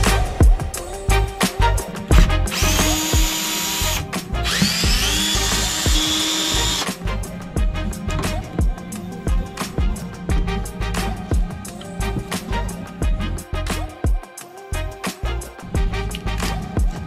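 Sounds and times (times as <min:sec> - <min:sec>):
music with steady beat: 0:00.0 - 0:17.0
power driver motor whining: 0:01.8 - 0:13.9.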